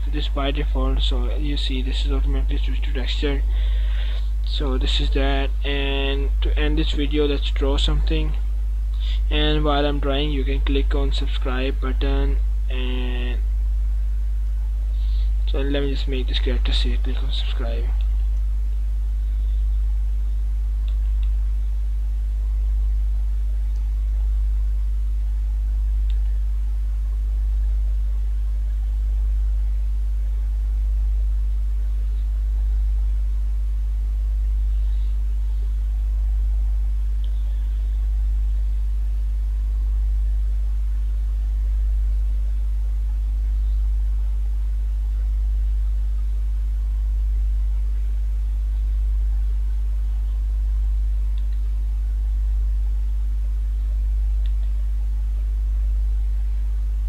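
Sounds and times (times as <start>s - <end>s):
steady low hum: 0.0s - 57.0s
faint clicks: 54.4s - 54.8s.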